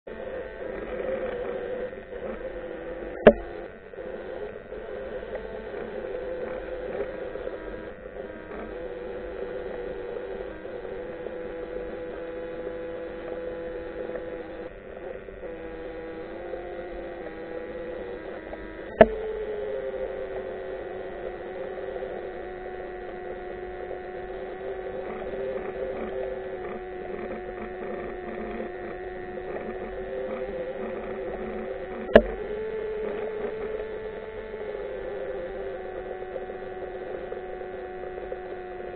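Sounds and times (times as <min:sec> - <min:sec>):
underwater droning hum: 0:00.1 - 0:38.9
sharp click: 0:32.0 - 0:32.4.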